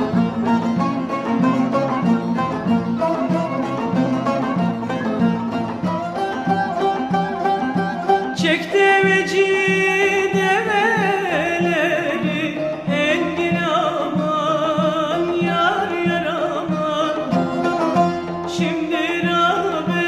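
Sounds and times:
low plucked and struck beat: 0.0 - 13.8
folk melody with sliding notes: 0.0 - 20.0.

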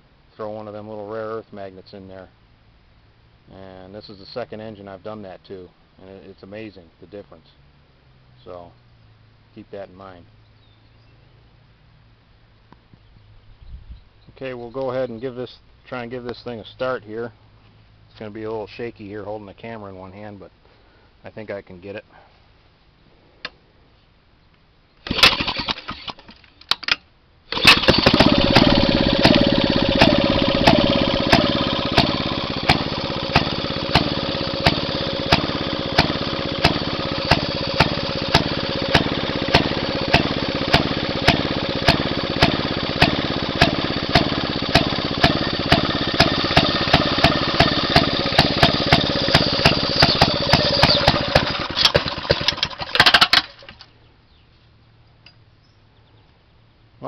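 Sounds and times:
two-stroke engine running: 25.1 - 26.2, 27.5 - 53.8.

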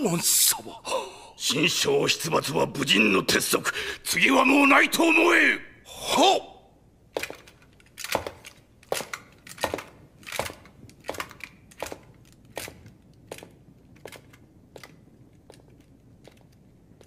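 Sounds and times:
footsteps walking away: 7.1 - 17.0.

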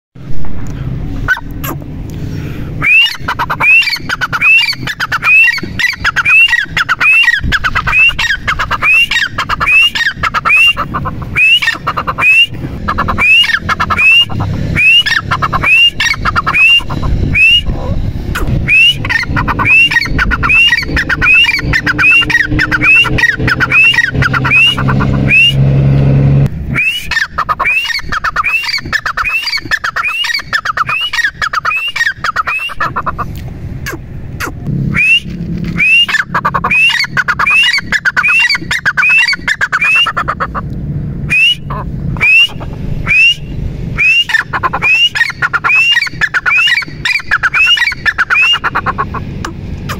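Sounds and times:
low hum: 0.2 - 27.6, 32.9 - 45.6
francolin calling: 2.8 - 17.9, 18.7 - 25.6, 34.9 - 40.5, 41.3 - 49.9.

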